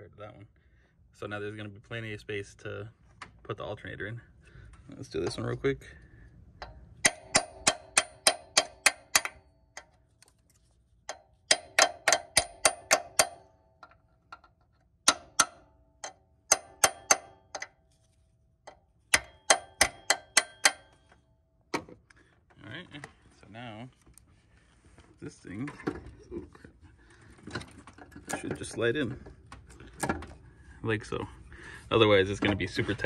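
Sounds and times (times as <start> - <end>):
small hammer tapping metal: 6.6 - 10.0, 11.1 - 17.8, 18.7 - 21.2.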